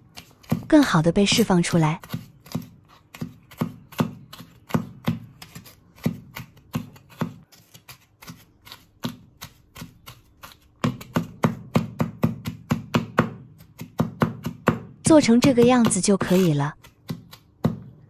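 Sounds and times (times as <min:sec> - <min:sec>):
cleaver chopping on wooden board: 0:02.0 - 0:07.4, 0:09.0 - 0:18.0.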